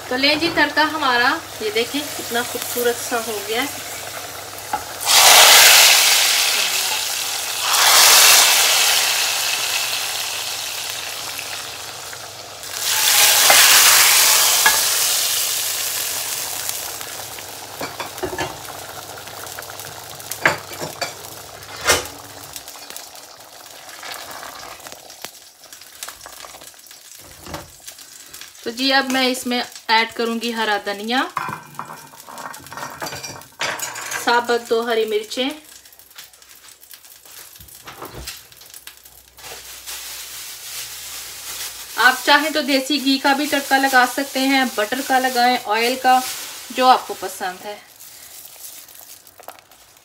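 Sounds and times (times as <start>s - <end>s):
hot oil sizzling: 0.0s - 50.0s.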